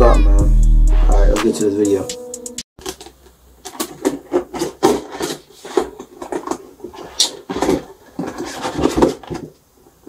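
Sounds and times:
wooden parts knocking and rubbing: 2.8s - 9.6s.

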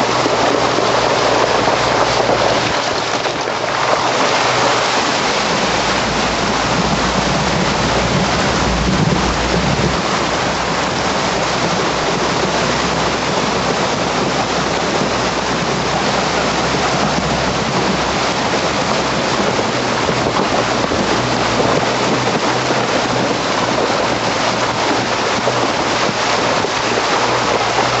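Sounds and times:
low engine rumble: 0.0s - 28.0s
water splashing around wheels: 0.0s - 28.0s.

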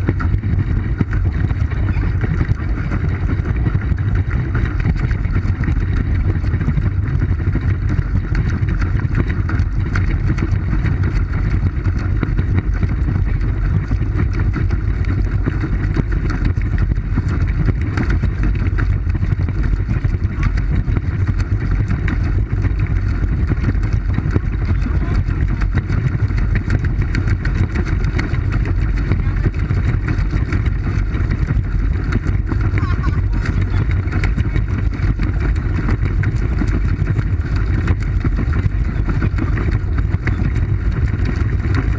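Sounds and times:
pedal boat moving on water: 0.0s - 41.9s.

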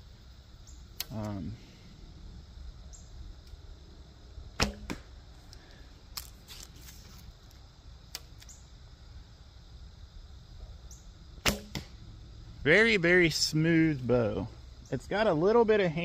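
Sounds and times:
bowstring snapping: 1.0s - 1.4s, 4.6s - 8.6s, 11.4s - 11.9s
arrow striking target: 4.6s - 5.1s, 11.4s - 12.0s.

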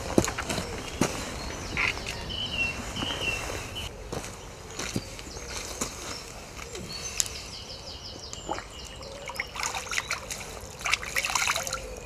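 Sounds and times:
bird singing falling notes: 4.8s - 12.0s
water splashing and trickling: 8.4s - 12.0s.

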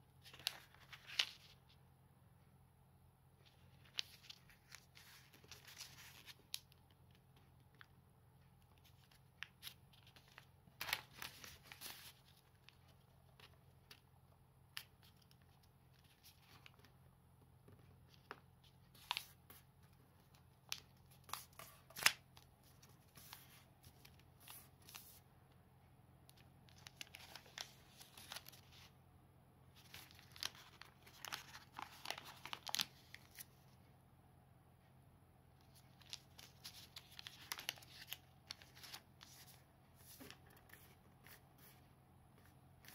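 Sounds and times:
paper rustling and crinkling: 0.2s - 1.6s, 3.4s - 7.9s, 8.7s - 14.0s, 26.7s - 28.9s, 29.8s - 33.5s, 35.7s - 42.9s.

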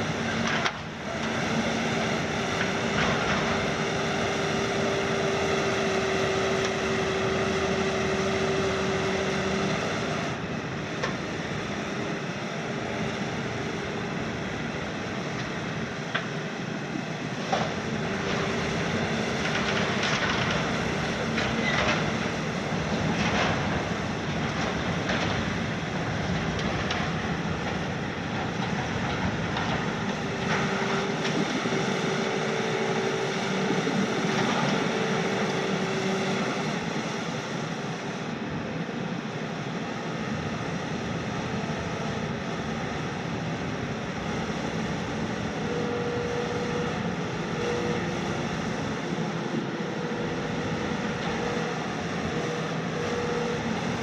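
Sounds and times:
diesel engine and hydraulics: 0.0s - 54.0s
hydraulic whine: 27.2s - 38.9s.

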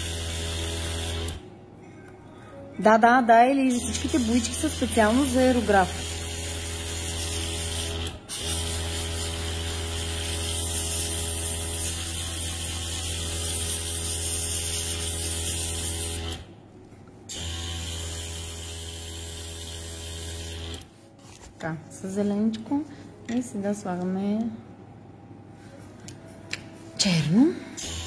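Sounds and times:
air compressor humming: 0.0s - 1.5s, 27.8s - 28.0s
air hissing through airbrush: 5.2s - 16.4s.

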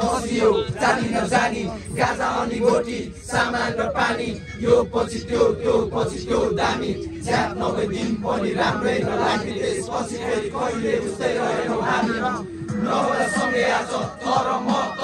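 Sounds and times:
crowd of men chanting: 0.0s - 15.0s.

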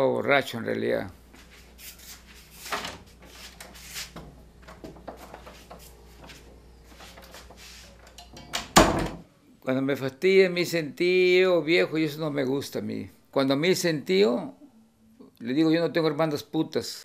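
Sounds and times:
soft knocks and rustles: 1.4s - 8.4s
low steady hum: 10.6s - 15.9s.

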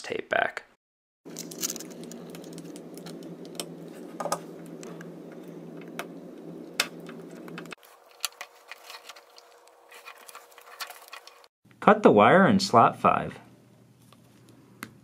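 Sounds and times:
steady low hum: 1.3s - 11.4s.

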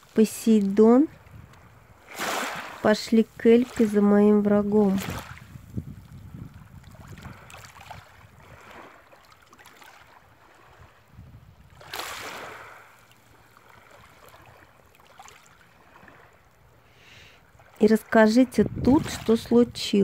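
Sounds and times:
sea waves washing on shore: 0.0s - 20.0s
wind rumble on microphone: 0.2s - 9.0s, 10.3s - 12.9s, 17.8s - 20.0s.

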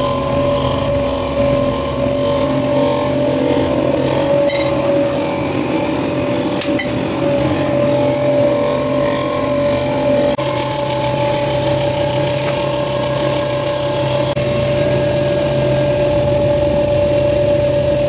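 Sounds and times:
machine mechanical hum: 0.0s - 18.0s.

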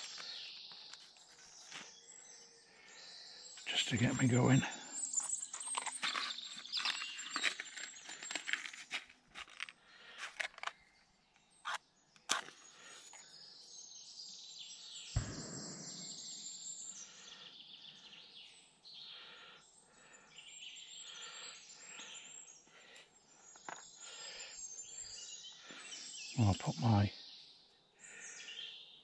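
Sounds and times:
birds singing: 0.0s - 8.8s, 9.8s - 29.0s
crackly packet handling: 5.2s - 11.0s.

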